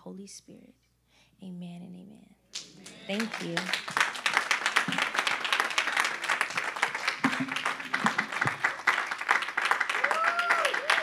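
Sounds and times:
crowd clapping: 2.6 - 11.0.

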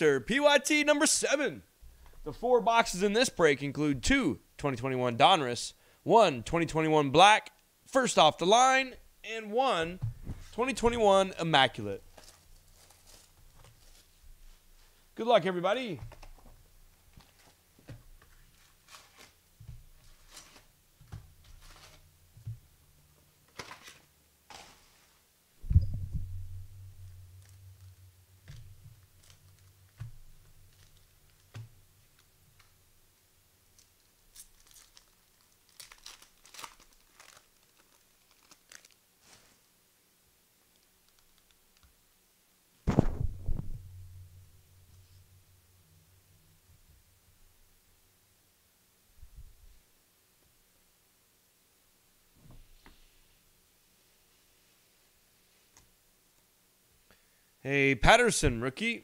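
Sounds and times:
low steady hum: 7.8 - 15.2, 15.8 - 36.2, 42.9 - 55.4
rustling thump: 9.8 - 11.1, 16.0 - 22.8, 23.6 - 32.8, 42.8 - 45.6
card packs rustling: 12.0 - 14.2, 16.1 - 22.0, 23.5 - 25.0, 33.8 - 39.5
packaging torn and crinkled: 12.1 - 14.1, 18.5 - 19.4, 29.1 - 32.7, 33.7 - 39.1, 40.7 - 41.9.

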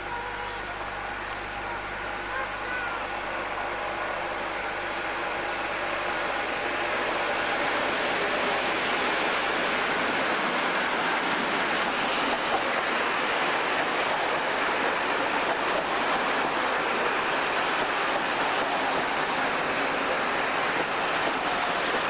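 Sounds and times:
train coaches rushing past: 0.0 - 22.0.

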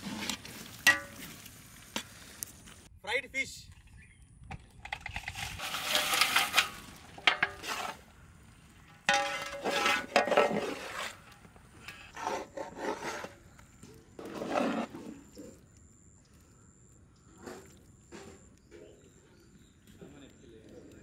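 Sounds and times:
ladle scraping a steel wok: 5.2 - 8.1, 9.0 - 13.5, 14.2 - 15.5.

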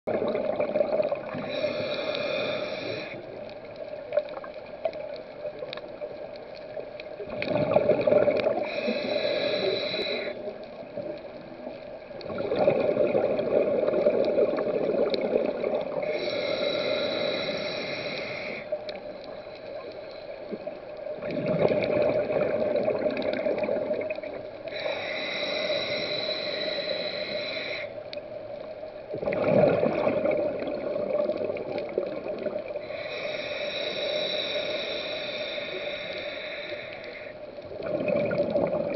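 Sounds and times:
bubbling exhaled air: 0.1 - 3.5, 7.2 - 11.2, 12.2 - 18.8, 20.5 - 27.9, 29.1 - 38.9
diver breathing through regulator: 1.2 - 3.4, 7.8 - 10.6, 15.9 - 20.7, 24.7 - 28.0, 32.8 - 37.5.

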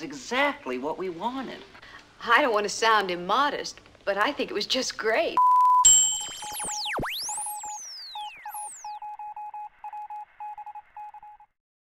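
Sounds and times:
morse-like beeping tone: 5.8 - 11.4
sweeping electronic whistling tones: 5.8 - 11.4.

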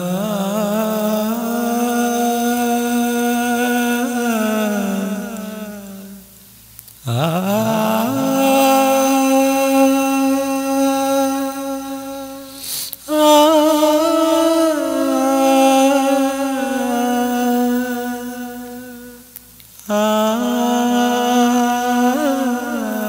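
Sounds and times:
person humming a slow melody: 0.0 - 6.3, 7.0 - 23.0.

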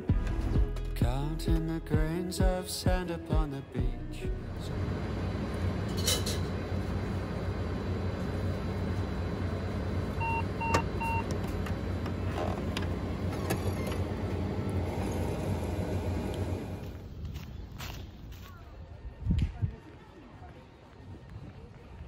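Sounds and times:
coffee machine humming and hissing: 4.4 - 17.0
short beeps: 10.2 - 11.3.

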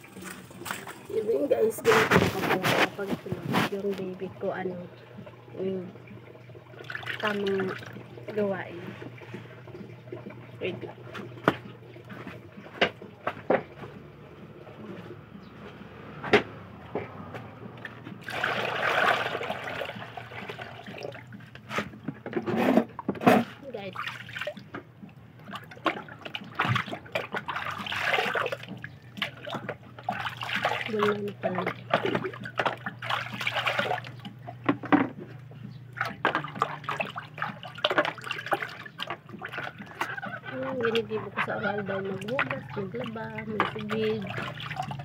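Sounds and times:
water pouring into basin: 5.2 - 12.3, 18.2 - 21.4, 23.9 - 24.6, 25.5 - 34.4, 35.9 - 41.1, 41.8 - 45.0.

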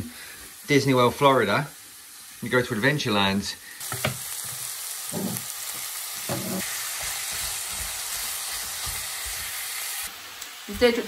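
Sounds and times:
meat and onion sizzling: 0.0 - 11.0.

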